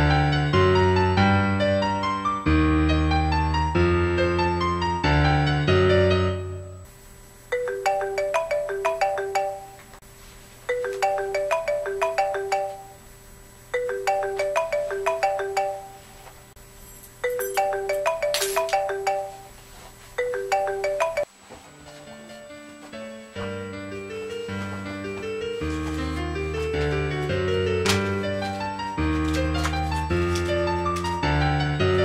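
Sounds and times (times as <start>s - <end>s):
mobile phone ringtone: 7.6s - 9.8s, 10.7s - 13.0s, 13.8s - 16.2s, 17.3s - 19.6s, 20.2s - 21.3s.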